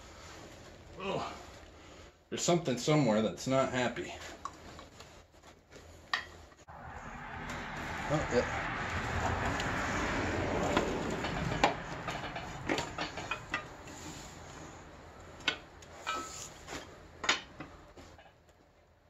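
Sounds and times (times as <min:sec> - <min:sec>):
rough metal scraping: 0:06.7 - 0:15.1
metallic clicks and clunks: 0:10.6 - 0:14.0.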